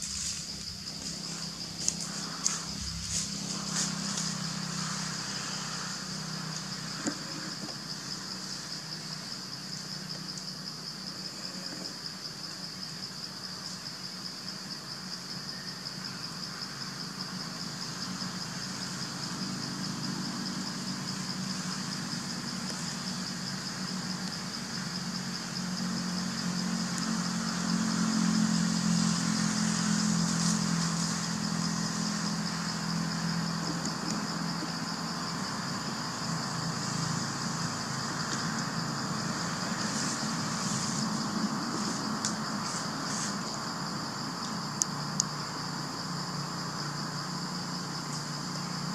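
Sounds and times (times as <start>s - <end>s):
low engine hum: 0.0s - 8.1s, 19.3s - 48.9s.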